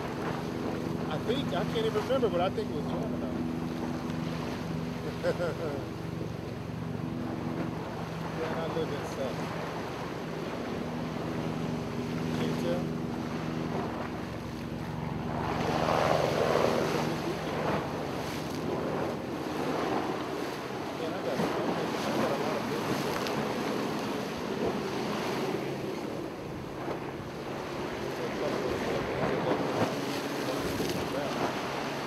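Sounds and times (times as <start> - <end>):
ocean waves washing on shore: 0.0 - 32.0
wind buffeting microphone: 5.9 - 32.0.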